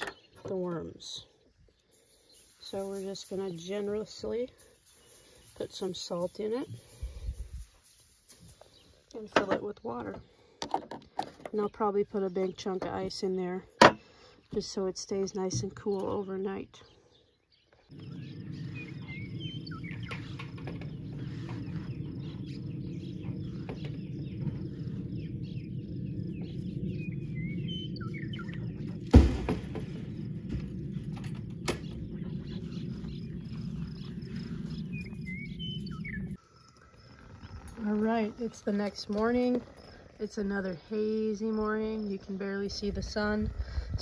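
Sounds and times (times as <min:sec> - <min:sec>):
birds chirping: 0:00.0 - 0:44.0
steady low rumble: 0:17.9 - 0:36.4.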